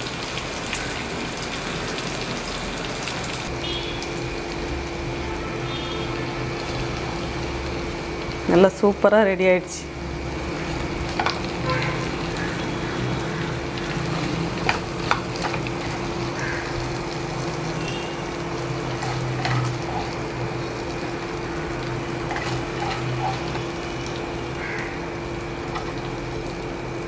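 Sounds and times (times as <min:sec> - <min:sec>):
steady hum: 0:02.6 - 0:27.0
spoon scraping a frying pan: 0:14.6 - 0:16.2, 0:18.6 - 0:20.3, 0:21.9 - 0:23.8.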